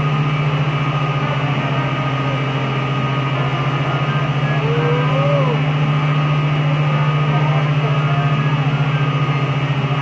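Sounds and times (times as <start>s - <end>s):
water pump machinery humming: 0.0s - 10.0s.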